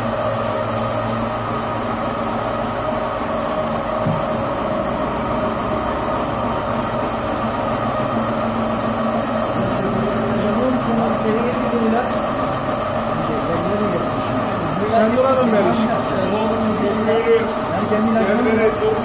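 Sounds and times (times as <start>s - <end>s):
carpet washing machine humming: 0.0s - 19.0s.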